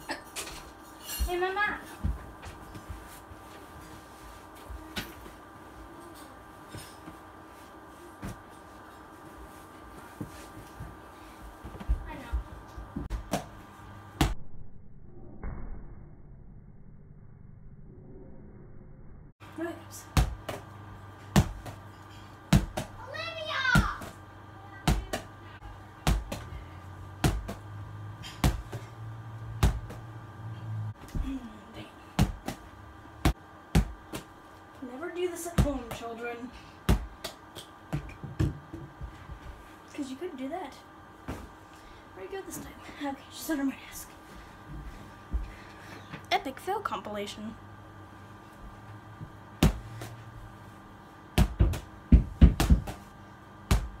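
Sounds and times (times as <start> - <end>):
ball thumping against wall: 36.9 - 39.1, 51.4 - 53.0
ball thudding against wall: 51.4 - 53.0.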